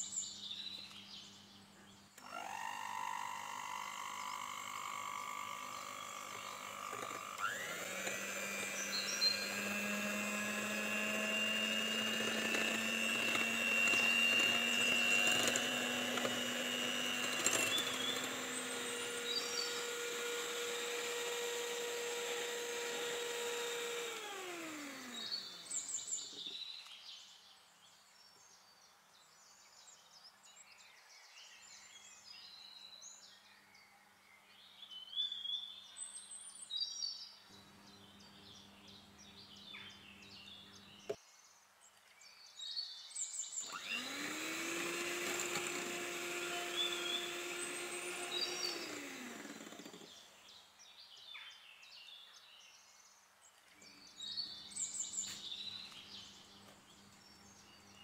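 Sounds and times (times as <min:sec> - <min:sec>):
birds chirping: 0:00.0 - 0:58.0
electric hand mixer whining: 0:02.2 - 0:26.4, 0:43.6 - 0:50.4.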